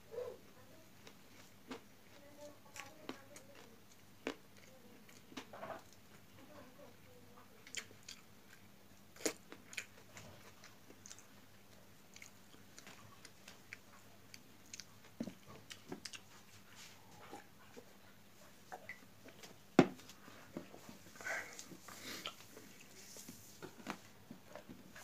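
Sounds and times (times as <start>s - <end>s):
person chewing food: 1.0s - 6.3s, 7.6s - 25.0s.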